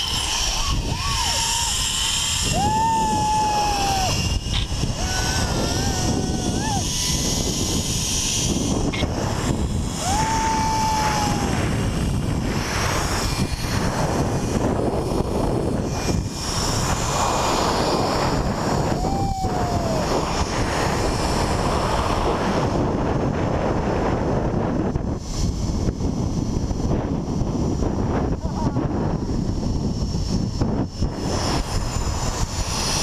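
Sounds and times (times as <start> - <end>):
wind rushing over microphone: 0.0 - 33.0.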